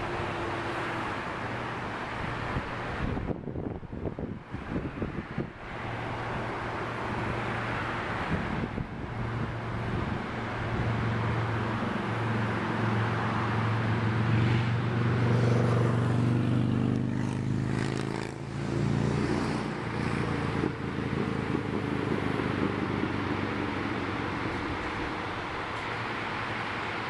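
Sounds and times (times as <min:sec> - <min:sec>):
vehicle engine passing: 0:00.0 - 0:27.0.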